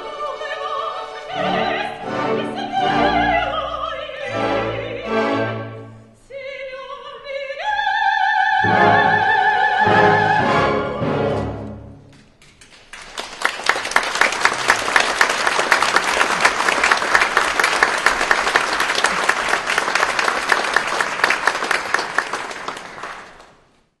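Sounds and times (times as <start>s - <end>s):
audience applauding: 12.4s - 23.7s.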